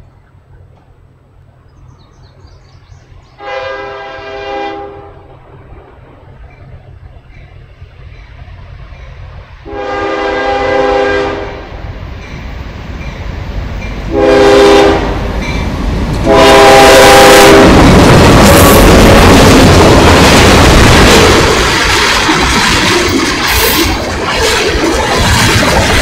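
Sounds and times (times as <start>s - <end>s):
train passing with wheel noise: 0.0s - 26.0s
train rumble: 0.0s - 26.0s
locomotive air horn blasts: 3.4s - 5.3s, 9.6s - 11.7s, 14.1s - 15.2s, 16.2s - 17.8s.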